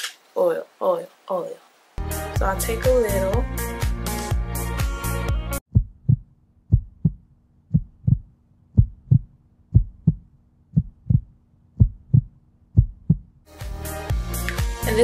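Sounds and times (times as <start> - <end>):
deep heartbeat-like double thumps: 5.7 - 13.4.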